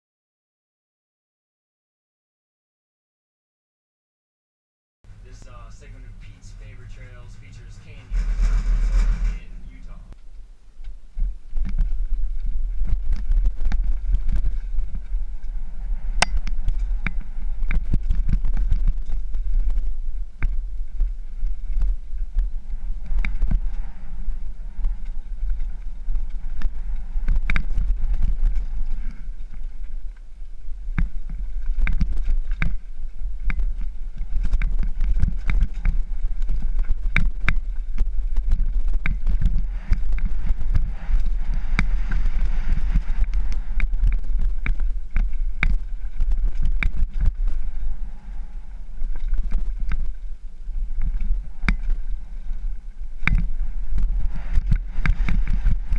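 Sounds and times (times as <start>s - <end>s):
wind buffeting microphone: 5.1s - 55.9s
bike knocking and rattling: 6.7s - 15.6s, 16.2s - 47.7s.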